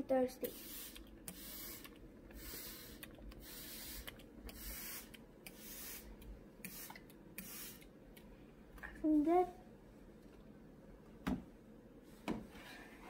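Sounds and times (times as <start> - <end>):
spray bottle spritzing: 0.4 - 7.9.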